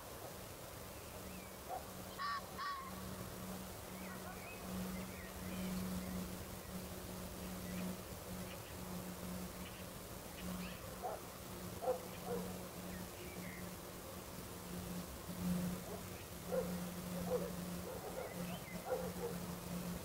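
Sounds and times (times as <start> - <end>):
flying insect buzzing: 0.0 - 20.0
faint bird chirps: 3.8 - 8.9.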